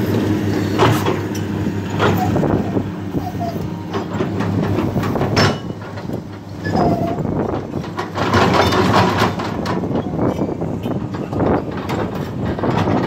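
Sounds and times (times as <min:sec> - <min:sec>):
diesel engine hum: 0:00.0 - 0:13.0
short squeal: 0:06.6 - 0:07.3.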